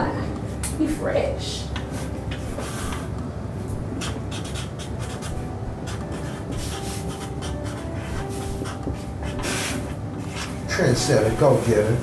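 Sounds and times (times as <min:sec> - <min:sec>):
markers scratching on paper: 0:02.3 - 0:03.1, 0:04.0 - 0:10.6.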